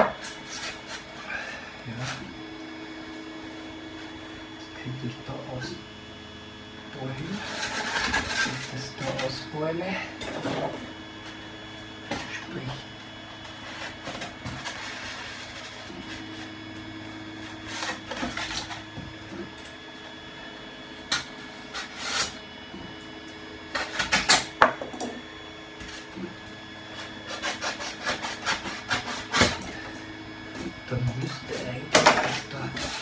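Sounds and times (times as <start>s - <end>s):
foam board scratching: 13.6s - 16.6s, 21.7s - 22.4s, 26.9s - 29.6s.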